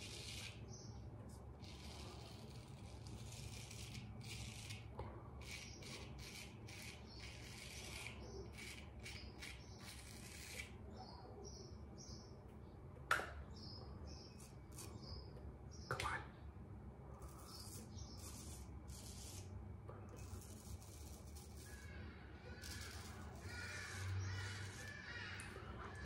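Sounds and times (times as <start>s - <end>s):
straight razor scraping stubble: 0.0s - 10.8s, 14.2s - 15.3s, 17.2s - 26.0s.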